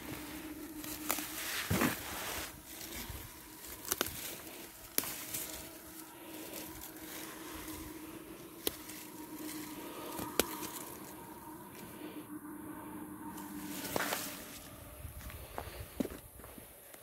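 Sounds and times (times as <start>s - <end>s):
faint steady hum: 0.0s - 17.0s
footsteps on dirt track: 13.7s - 17.0s.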